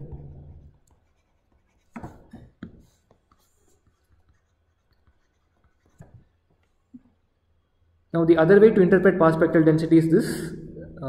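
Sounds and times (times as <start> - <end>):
stylus tapping and scratching: 0.0 - 6.7.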